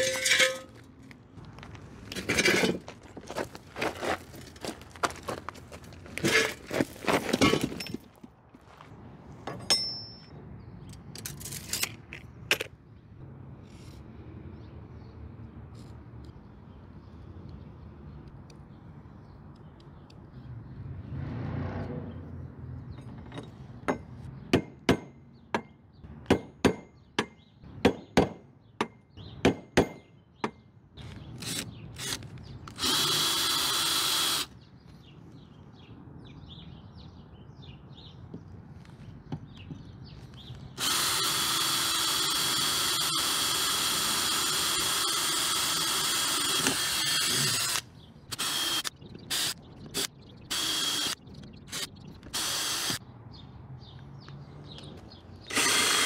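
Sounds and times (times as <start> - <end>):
cordless drill drilling into steel: 31.4 - 34.5, 40.8 - 53.0, 55.5 - 56.0.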